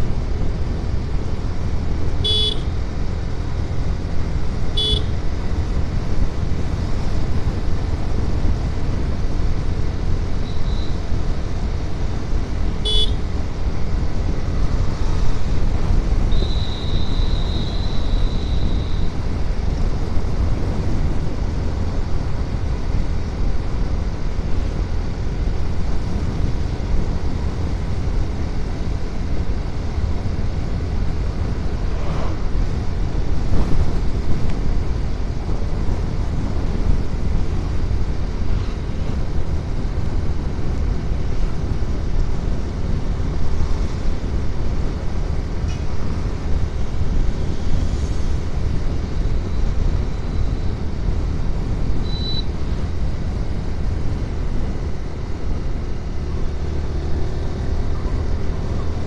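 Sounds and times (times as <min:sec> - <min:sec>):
motorcycle engine and road noise: 0:00.0 - 0:59.0
horn toots: 0:02.2 - 0:02.6, 0:04.8 - 0:05.1, 0:12.8 - 0:13.2, 0:16.3 - 0:19.1
wind rumble on microphone: 0:05.3 - 0:59.0.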